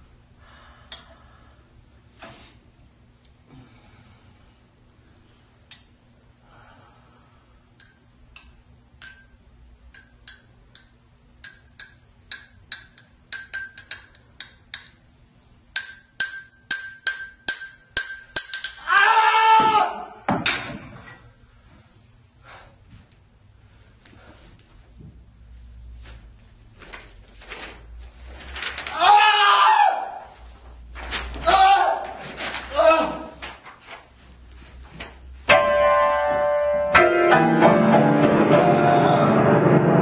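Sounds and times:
loud wordless vocal cry: 0:38.3 - 0:39.5.

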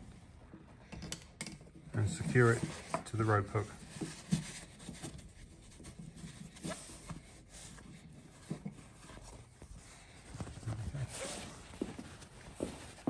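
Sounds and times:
rope and canvas rustling: 0:02.0 - 0:13.0
loud canvas rustle: 0:08.8 - 0:13.0.

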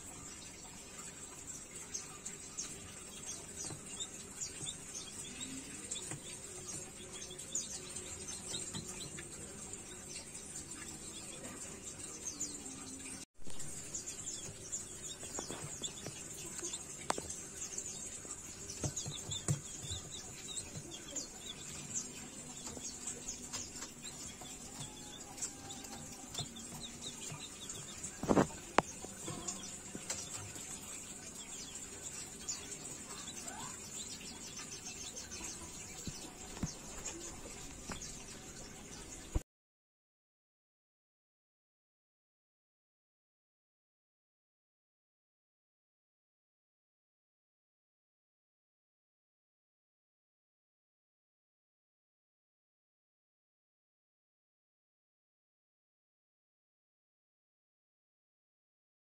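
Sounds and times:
chicks peeping and chirping: 0:00.0 - 0:39.4.

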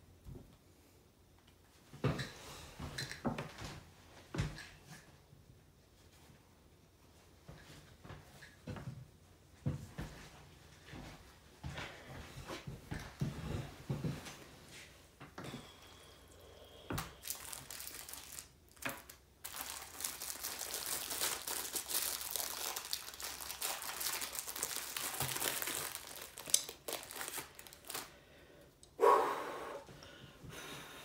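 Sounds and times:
plastic packaging crinkling: 0:16.9 - 0:28.2.

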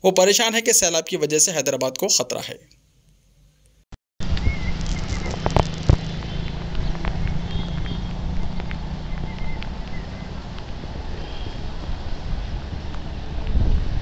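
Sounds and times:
wind buffeting microphone: 0:04.2 - 0:14.0.

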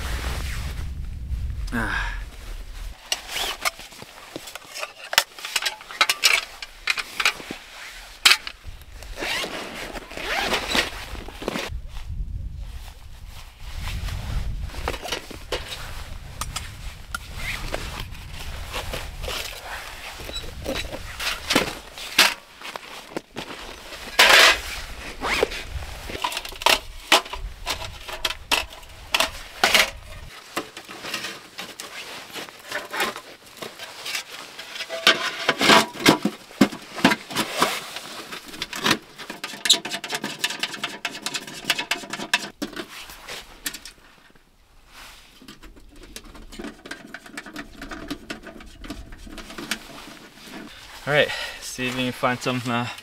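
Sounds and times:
light metal clanks and scrapes: 0:03.1 - 0:08.6, 0:23.5 - 0:24.8, 0:25.4 - 0:44.3, 0:45.2 - 0:50.9.

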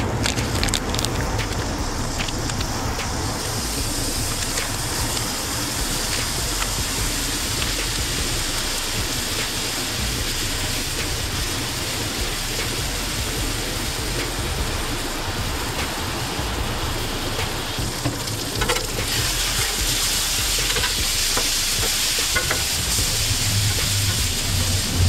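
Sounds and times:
low rumble: 0:00.0 - 0:25.0
bacon sizzling on a griddle: 0:18.0 - 0:25.0.

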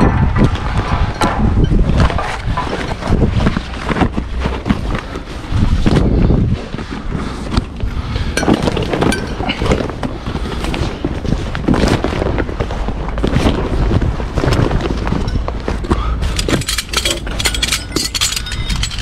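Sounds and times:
trailer curtain rustling and flapping: 0:00.0 - 0:19.0
wind buffeting microphone: 0:00.0 - 0:19.0
strap buckles clacking: 0:14.4 - 0:19.0.

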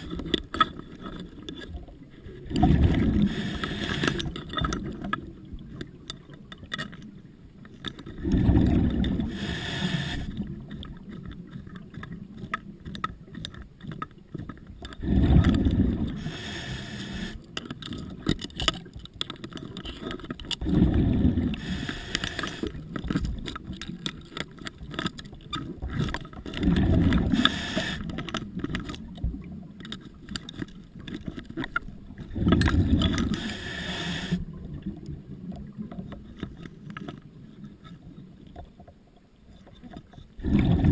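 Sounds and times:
faint clicks: 0:00.0 - 0:08.2, 0:08.9 - 0:20.7, 0:21.5 - 0:40.4
exhaled bubbles from diving regulator: 0:02.5 - 0:05.0, 0:08.2 - 0:10.6, 0:15.0 - 0:17.3, 0:20.6 - 0:23.1, 0:26.5 - 0:28.2, 0:40.4 - 0:40.9.

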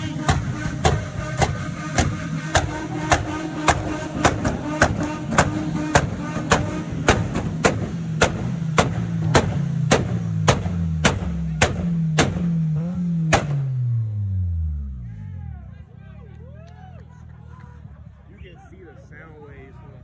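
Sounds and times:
hip-hop beat hits: 0:00.0 - 0:13.8
deep bass line: 0:00.0 - 0:20.0.

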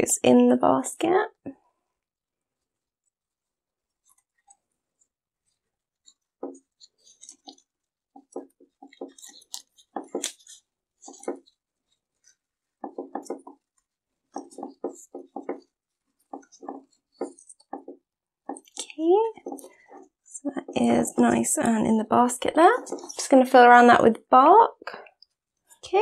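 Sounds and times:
plastic knocking against wood: 0:06.4 - 0:06.6, 0:08.2 - 0:09.2, 0:09.9 - 0:10.4, 0:11.1 - 0:11.4, 0:12.8 - 0:13.6, 0:14.4 - 0:15.7, 0:16.3 - 0:18.7.

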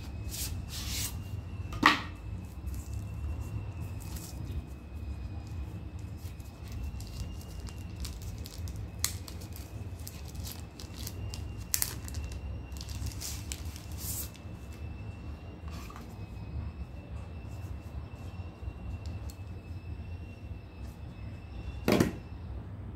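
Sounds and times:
plastic bag crinkling: 0:06.5 - 0:14.4.

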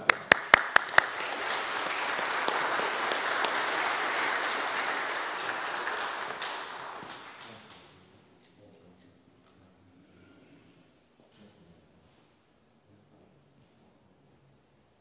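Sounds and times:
congregation applauding: 0:00.0 - 0:08.2.

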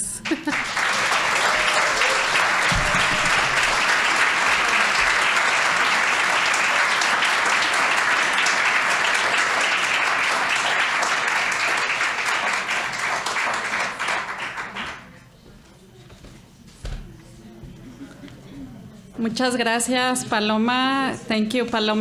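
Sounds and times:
audience applauding: 0:00.0 - 0:15.2.

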